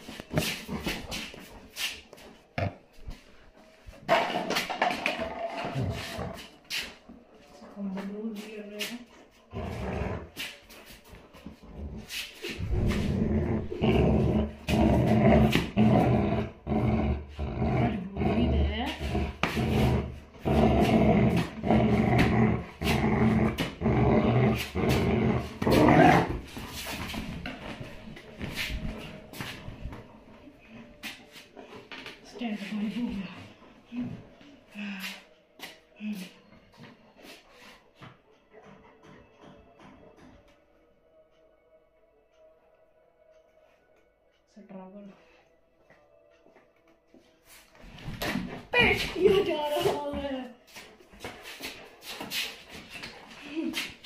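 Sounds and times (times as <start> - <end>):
dog play-growling: 4.9 - 6.9, 9.4 - 10.6, 11.5 - 27.6.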